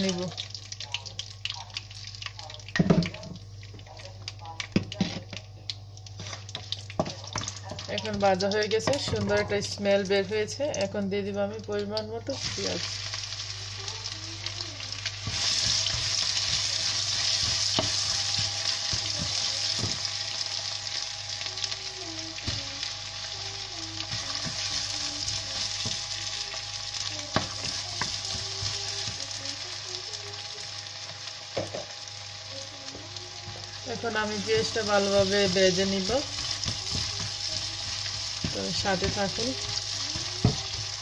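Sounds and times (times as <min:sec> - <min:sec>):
onions sizzling in hot oil: 0:00.0 - 0:10.8, 0:11.8 - 0:41.0
wooden spoon knocking on pan: 0:15.2 - 0:20.1, 0:24.1 - 0:26.1, 0:27.2 - 0:29.3, 0:31.6 - 0:31.9, 0:34.2 - 0:41.0.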